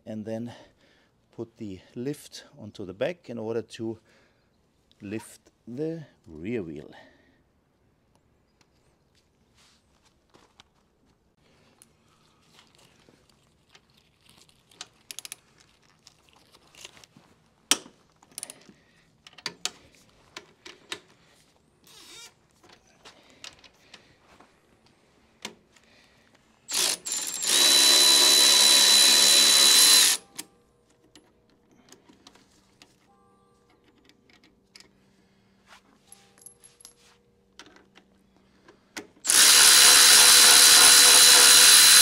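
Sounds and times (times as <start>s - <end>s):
tools clicking and knocking: 14.7s - 16.9s, 17.7s - 21.1s, 28.9s - 33.0s, 33.7s - 35.0s, 36.1s - 39.3s
cordless ratchet buzzing: 26.7s - 30.4s, 39.2s - 42.0s.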